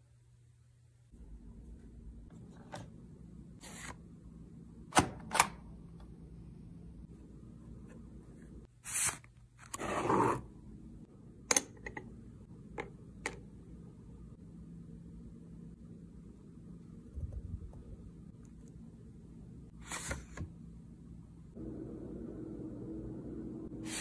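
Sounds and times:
faint low hum: 0.0 - 8.7, 10.4 - 24.0.

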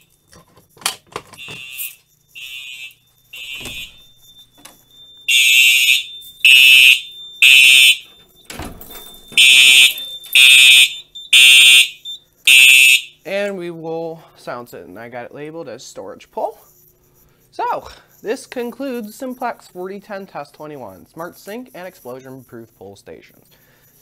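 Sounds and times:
fire alarm horn blasts: 1.4 - 13.3.

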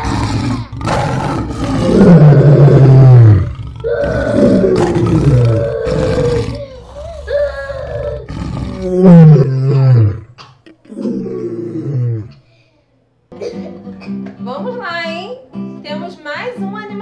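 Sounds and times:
lion roaring: 0.0 - 12.4.

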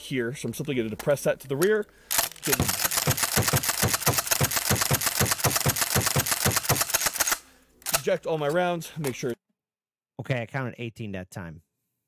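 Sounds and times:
shotgun slide racking: 2.1 - 8.1.

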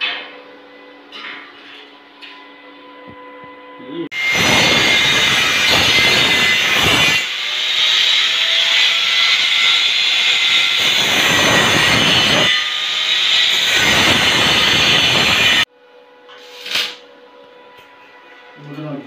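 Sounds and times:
angle grinder cutting steel: 4.1 - 15.7.

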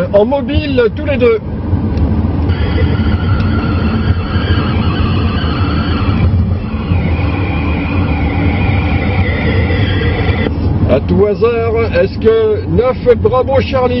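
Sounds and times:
car engine and road rumble: 0.0 - 14.0.

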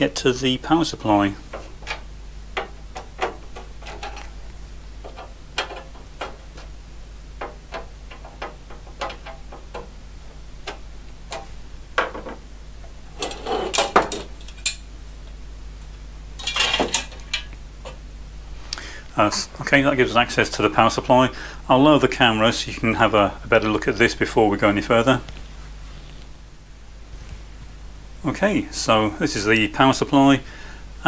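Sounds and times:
metal panel clattering: 1.5 - 4.4, 5.0 - 6.8, 7.4 - 10.0.

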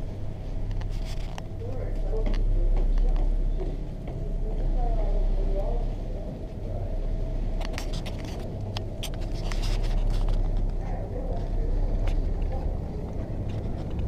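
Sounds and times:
ferry engines droning: 0.0 - 14.0.

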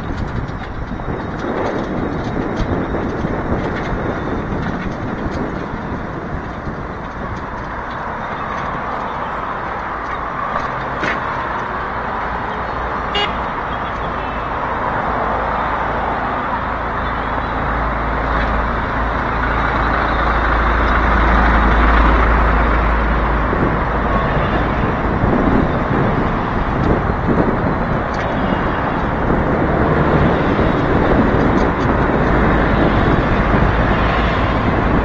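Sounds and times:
steady road hiss: 0.0 - 35.0
wind buffeting microphone: 0.0 - 35.0.

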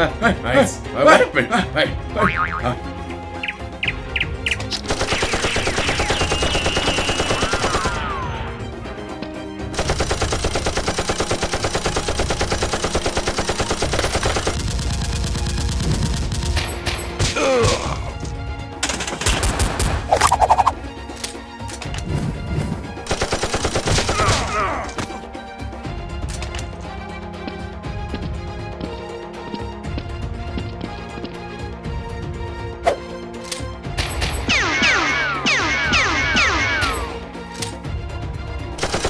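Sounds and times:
automatic gunfire: 4.9 - 8.0, 9.8 - 16.6.

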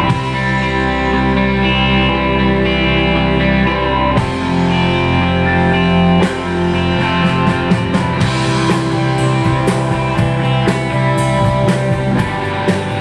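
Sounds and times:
live rock band playing: 0.0 - 13.0
drum hits: 6.2 - 13.0.

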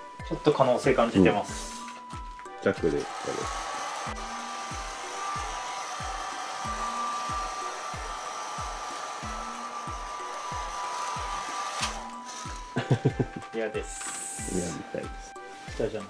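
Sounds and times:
background music with low thumps: 0.0 - 16.0
hair dryer running: 1.5 - 14.6.

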